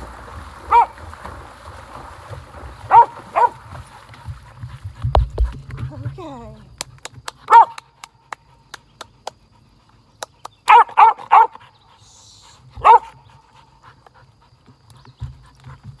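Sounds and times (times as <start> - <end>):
dog barking: 0.7 - 0.9, 2.9 - 3.6, 7.5 - 7.8, 10.7 - 11.6, 12.8 - 13.2.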